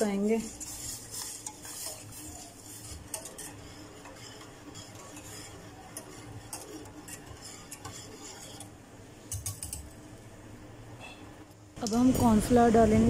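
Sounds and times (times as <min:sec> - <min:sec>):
whisk clinking and scraping in pan: 0:00.0 - 0:09.9.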